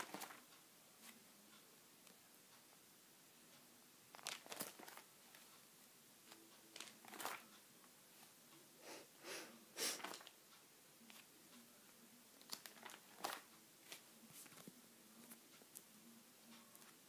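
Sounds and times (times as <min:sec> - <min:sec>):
plastic sheet protectors crinkling: 0:00.0 - 0:00.4, 0:04.1 - 0:05.4, 0:06.8 - 0:07.5, 0:12.5 - 0:14.6.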